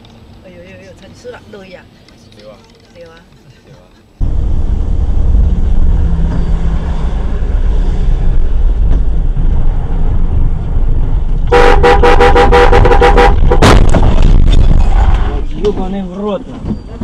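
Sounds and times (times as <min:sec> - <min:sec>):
bus engine rumble: 0:00.0 - 0:17.0
vehicle horn short blasts: 0:11.5 - 0:13.7.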